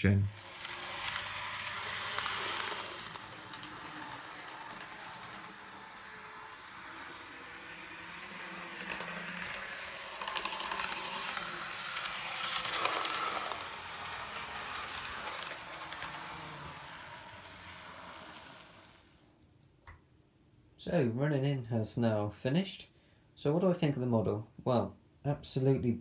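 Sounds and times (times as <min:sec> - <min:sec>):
model train motor whirring: 0:00.1 - 0:19.2
model train wheels clicking: 0:00.3 - 0:19.2.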